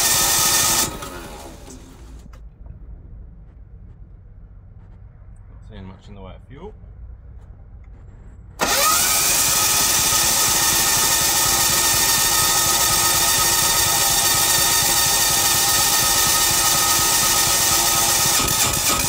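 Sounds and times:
starter motor cranking engine: 0.0 - 2.4, 8.6 - 19.0.

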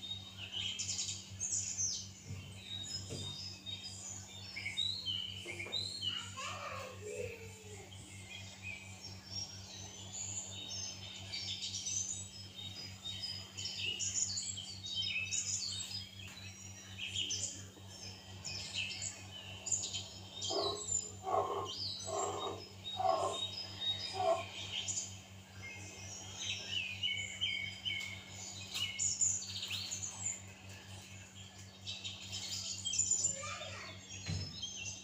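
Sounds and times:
small birds chirping: 0.0 - 35.0
steady low hum: 7.8 - 32.4
lower bird calls: 19.7 - 24.9.

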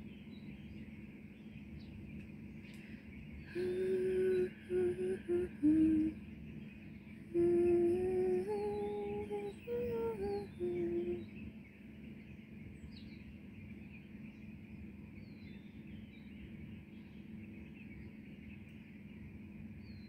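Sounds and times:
background hiss: 0.0 - 13.7
bird chirps: 0.0 - 20.0
person humming: 3.5 - 6.2, 7.3 - 11.2.

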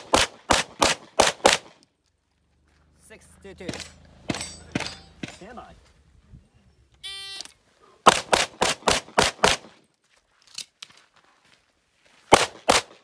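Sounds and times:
gunshots: 0.0 - 1.8, 3.6 - 5.6, 8.0 - 9.8, 12.3 - 13.0.

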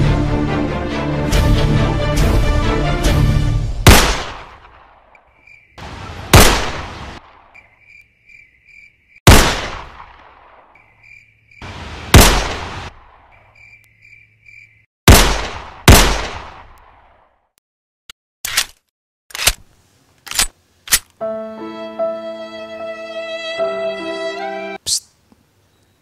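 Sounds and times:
pistol gunshots: 3.9 - 5.0, 6.3 - 7.5, 9.3 - 10.6, 12.1 - 13.2, 15.1 - 16.8.

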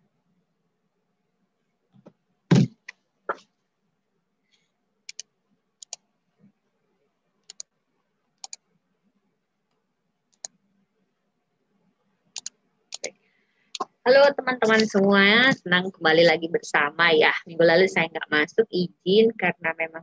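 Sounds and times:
loud thump: 2.5 - 2.8
computer mouse clicking: 5.1 - 6.0, 7.4 - 7.7, 8.4 - 8.6, 9.7 - 10.6, 12.3 - 13.9.

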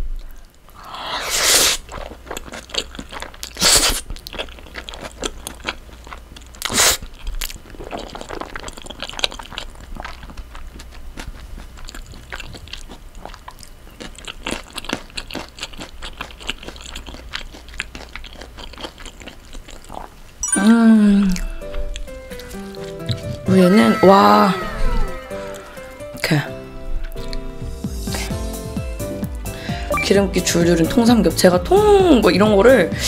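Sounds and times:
loud noodle slurp: 0.9 - 2.1, 3.5 - 4.1, 6.6 - 9.7
wet chewing: 1.3 - 20.4, 21.2 - 24.0, 27.0 - 27.5.

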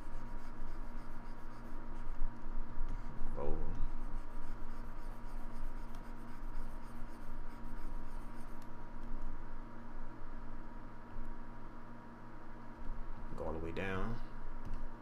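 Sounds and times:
faint stylus scratching: 0.0 - 2.2, 3.8 - 8.7
electrical hum and hiss: 0.0 - 15.0.

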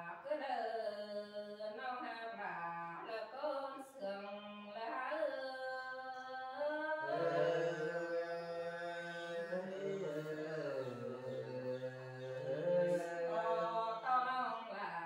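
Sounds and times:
person singing unaccompanied: 5.3 - 15.0.

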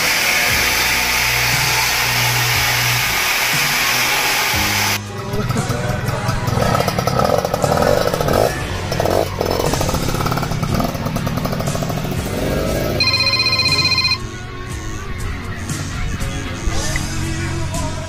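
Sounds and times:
small motorcycle engines revving: 0.0 - 14.2
electronic ringing tone: 13.0 - 14.2.

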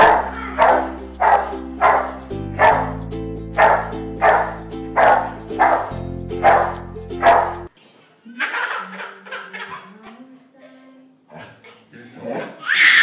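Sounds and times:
dog barking: 0.0 - 2.9, 3.6 - 7.7
background music with held chords: 0.0 - 7.7.

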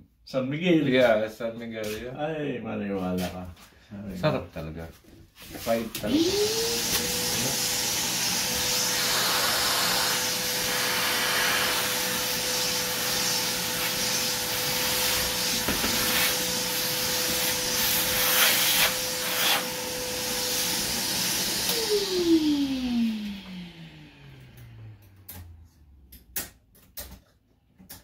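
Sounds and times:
vacuum running with hiss and hum: 5.9 - 25.6
motor winding down whine: 21.4 - 25.7.

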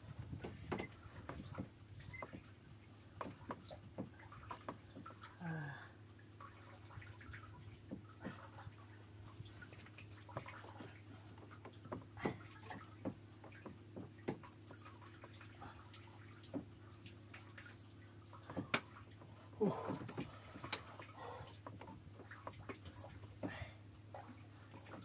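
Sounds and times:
water lapping against boat hull: 0.0 - 25.0
light knocks and taps: 0.3 - 2.4, 3.2 - 5.1, 11.4 - 14.5.

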